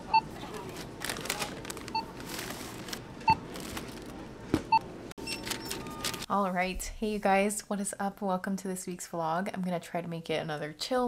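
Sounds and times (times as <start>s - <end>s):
items clattering and rustling: 0.4s - 4.8s
barcode scanner beeps: 4.7s - 6.2s.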